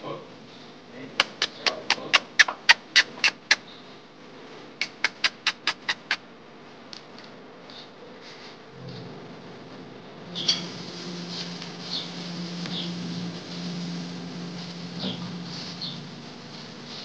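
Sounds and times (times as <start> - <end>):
dog yipping: 2.3 - 3.6, 4.9 - 6.2.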